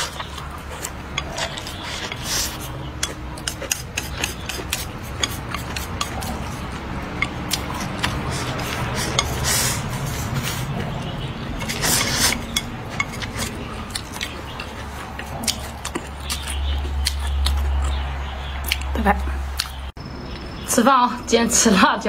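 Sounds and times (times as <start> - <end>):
chewing: 0.0 - 20.5
wet mouth clicks: 18.6 - 18.9, 19.6 - 19.9.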